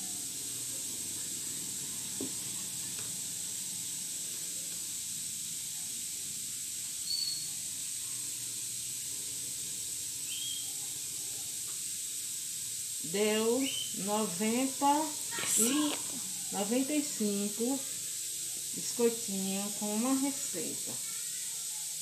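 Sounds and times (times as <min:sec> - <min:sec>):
background hiss: 0:00.0 - 0:22.0
faint tap: 0:02.2 - 0:02.4
faint high chirps: 0:07.0 - 0:08.1, 0:10.2 - 0:11.6, 0:13.4 - 0:14.1.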